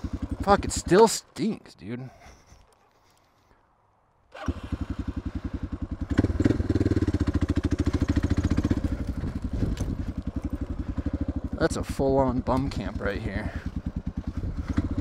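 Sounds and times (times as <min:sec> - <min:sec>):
motorcycle engine thumping: 0:06.0 - 0:11.6.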